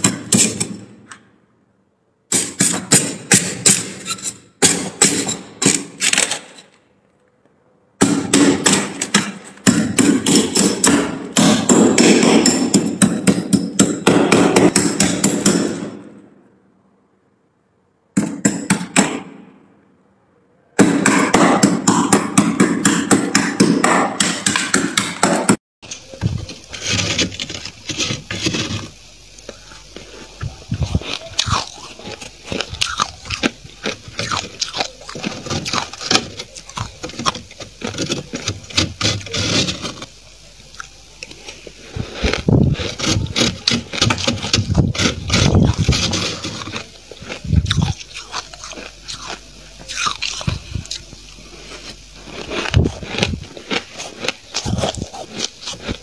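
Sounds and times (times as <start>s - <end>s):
metal spoon scraping frost: 26.0s - 29.1s, 29.8s - 40.1s, 41.2s - 56.0s.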